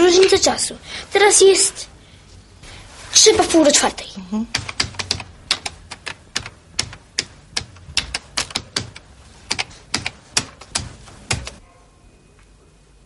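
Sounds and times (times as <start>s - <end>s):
computer keyboard typing: 4.5s - 11.6s.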